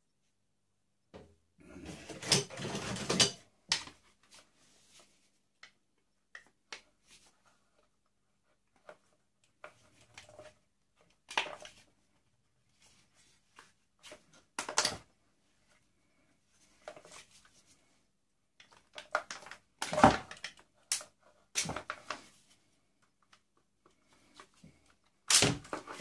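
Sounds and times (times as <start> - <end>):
plastic parts clattering: 1.8 - 4.0.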